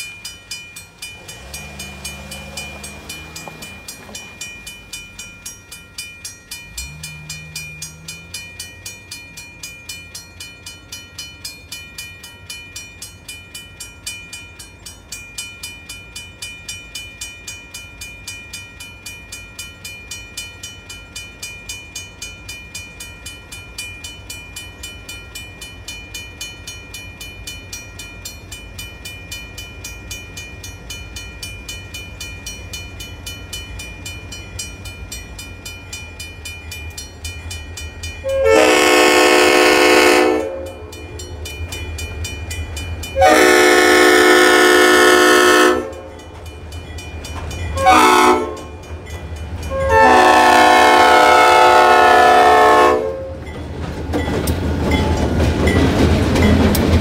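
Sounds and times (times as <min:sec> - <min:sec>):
diesel locomotive rumble: 0:00.0 - 0:18.1, 0:19.7 - 0:57.0
crossing bell ringing rapidly: 0:00.0 - 0:57.0
train horn blasts: 0:38.2 - 0:41.0, 0:43.2 - 0:46.2, 0:47.8 - 0:48.8, 0:49.7 - 0:53.4.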